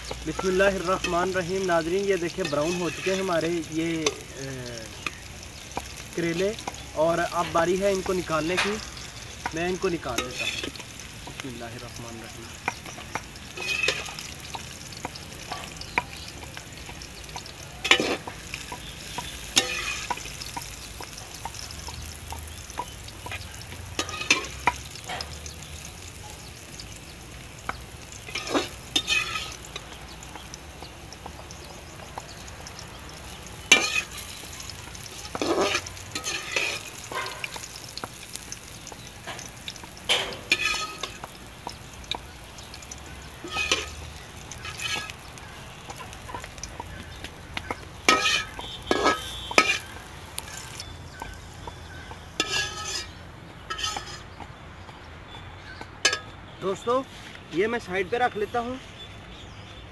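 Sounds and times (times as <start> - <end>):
metal spoon scraping a pan: 0.0 - 4.3, 5.8 - 11.4, 12.5 - 22.0, 22.6 - 25.9, 27.6 - 54.6, 56.0 - 56.4
frying sizzle: 0.0 - 59.9.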